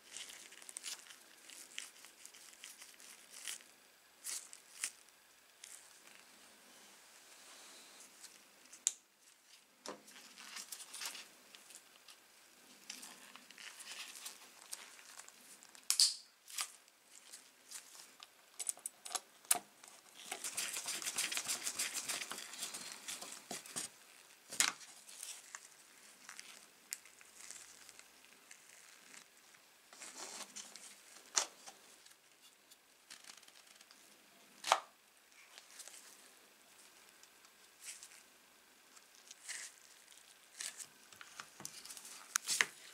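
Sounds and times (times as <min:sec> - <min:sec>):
rustling: 0:00.0 - 0:18.3, 0:19.9 - 0:34.0.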